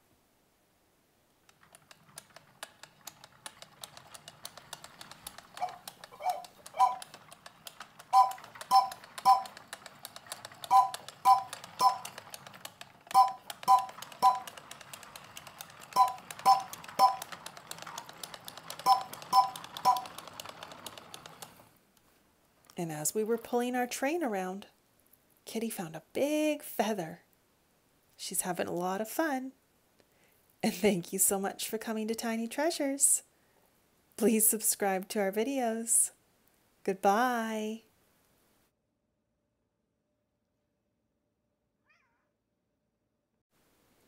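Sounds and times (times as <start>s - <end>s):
toy wheels clicking and rattling: 1.4s - 21.8s
short chiming tones: 8.2s - 9.5s.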